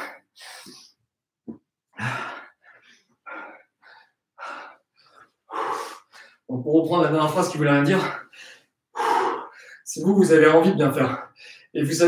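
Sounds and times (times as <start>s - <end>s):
man breathing hard: 0.0s - 1.0s, 2.0s - 6.5s, 8.0s - 9.9s, 11.2s - 11.8s.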